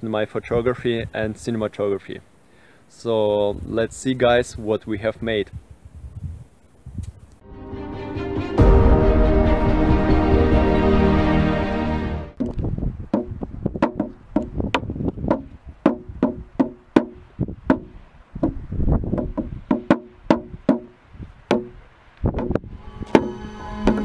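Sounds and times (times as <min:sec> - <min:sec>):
frame drum beats: 0:07.5 - 0:12.3.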